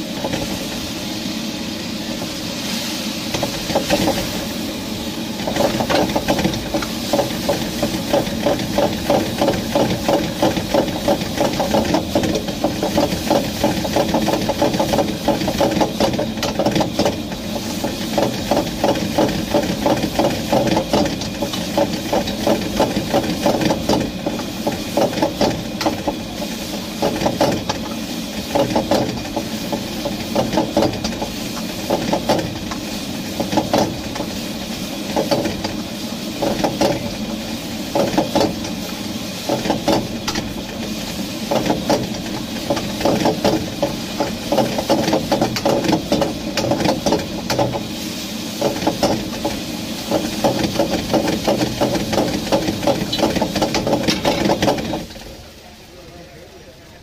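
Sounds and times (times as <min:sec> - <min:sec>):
gas burner roaring: 0:00.0 - 0:57.0.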